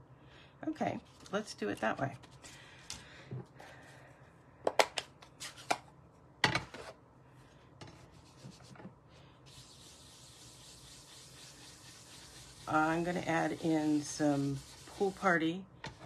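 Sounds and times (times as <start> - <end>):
soft rubbing: 8.0 - 16.0.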